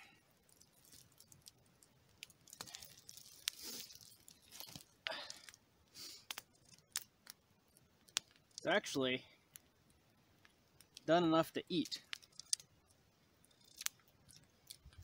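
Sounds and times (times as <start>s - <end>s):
campfire crackling snaps: 0.0s - 15.0s
jerky tearing by hand: 2.2s - 4.9s.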